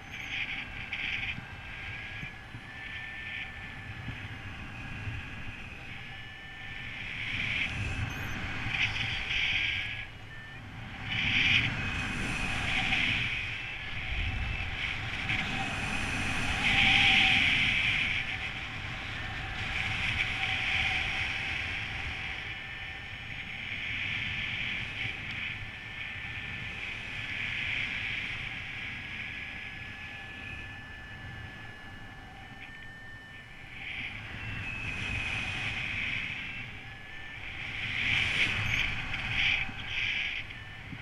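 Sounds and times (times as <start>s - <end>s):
variometer high electronic beeps: 0.0s - 14.7s, 29.5s - 41.0s
wind rushing over microphone: 0.0s - 41.0s.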